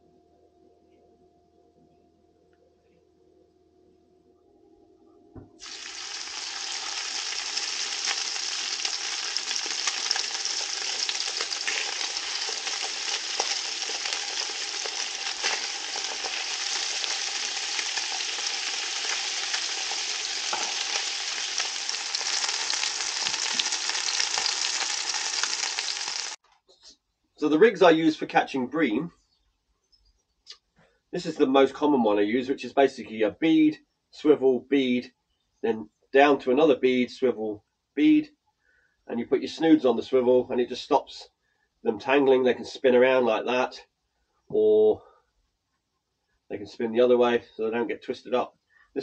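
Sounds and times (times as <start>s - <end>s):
fish frying in hot oil: 5.6s - 26.4s.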